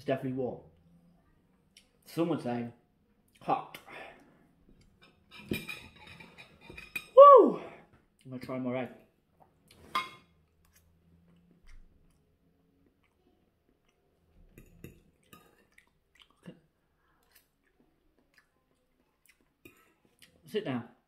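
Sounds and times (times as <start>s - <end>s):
chewing food: 10.5s - 20.5s.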